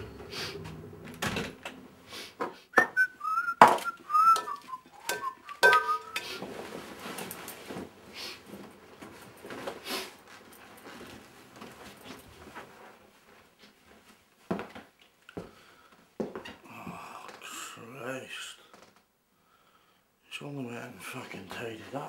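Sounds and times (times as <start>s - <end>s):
person whistling a tune: 2.8s - 6.4s
rustling: 3.0s - 14.2s.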